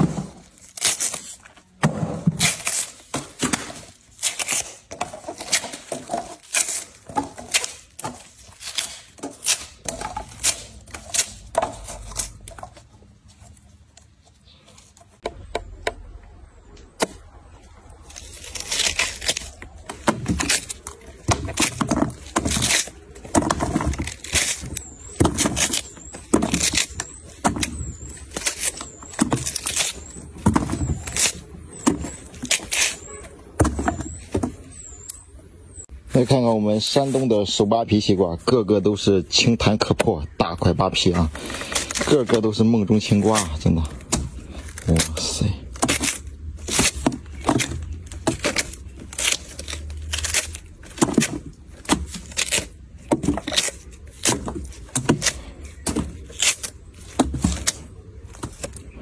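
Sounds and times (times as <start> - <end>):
watermelon rind cracking and tearing: 0.3 - 1.7, 2.4 - 14.1, 17.0 - 33.1, 41.4 - 59.0.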